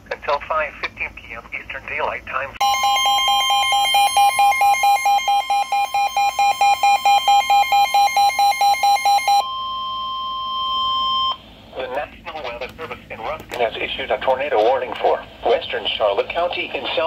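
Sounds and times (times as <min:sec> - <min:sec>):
weather radio alert tone: 0:02.6 - 0:11.4.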